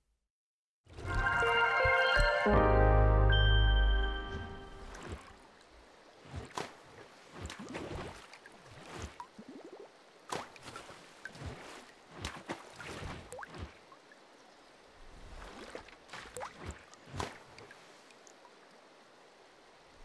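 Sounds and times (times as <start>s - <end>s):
water drips and splashes: 4.7s - 18.9s.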